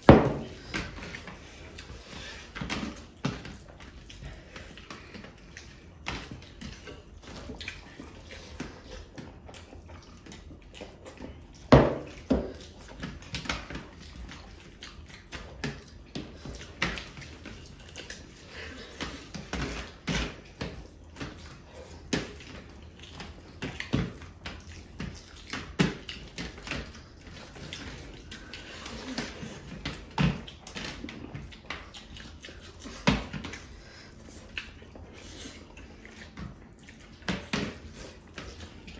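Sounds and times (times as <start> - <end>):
chewing: 0.0 - 38.9.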